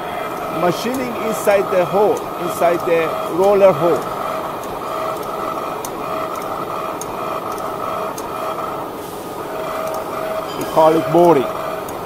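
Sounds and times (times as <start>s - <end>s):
lathe cutting steel: 0.0s - 12.0s
sharp ticks: 0.2s - 8.7s, 9.7s - 12.0s.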